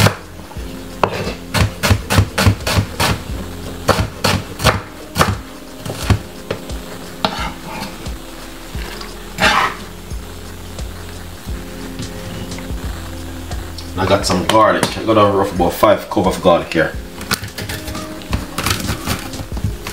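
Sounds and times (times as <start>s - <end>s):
knife chopping on cutting board: 3.9s - 6.6s.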